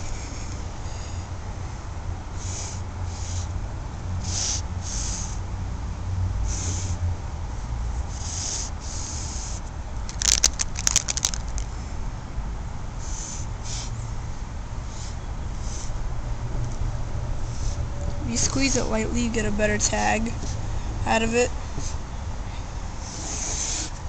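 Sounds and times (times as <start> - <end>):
sharp clicks: 10.1 - 11.7.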